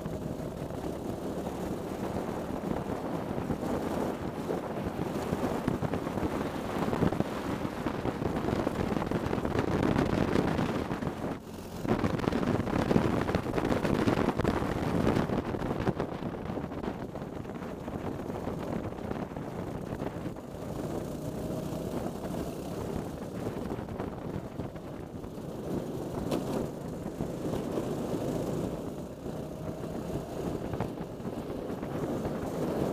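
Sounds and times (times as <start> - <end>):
kart engine running: 0.0 - 32.9
wind buffeting microphone: 0.0 - 32.9.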